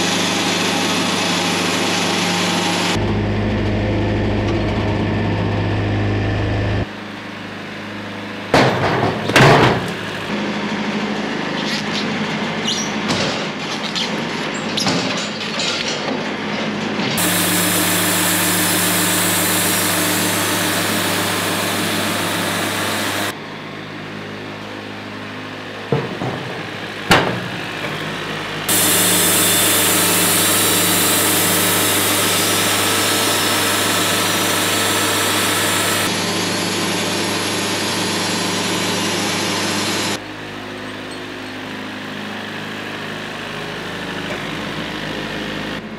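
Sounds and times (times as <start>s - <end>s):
diesel engine running: 0.0s - 13.7s, 16.4s - 45.9s
bandsaw blade cutting log: 17.2s - 23.4s, 26.4s - 36.4s
sharp knocks: 25.9s - 27.9s.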